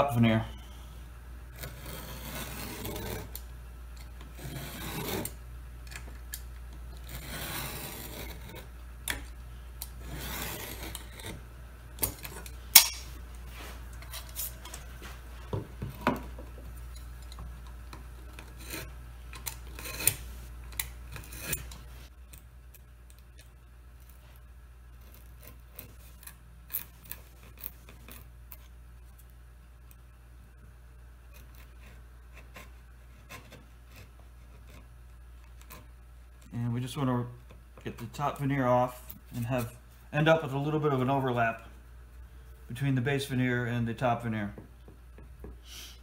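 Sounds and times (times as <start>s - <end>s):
knife scraping wood veneer: 1.5s - 3.4s, 4.2s - 5.4s, 6.9s - 8.7s, 9.8s - 11.4s, 18.2s - 20.4s, 31.3s - 34.9s.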